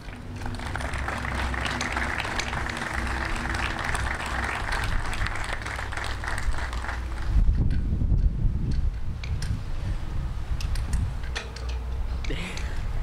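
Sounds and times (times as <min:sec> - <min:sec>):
audience applauding: 0:00.0 - 0:07.4
low rumble: 0:00.0 - 0:13.0.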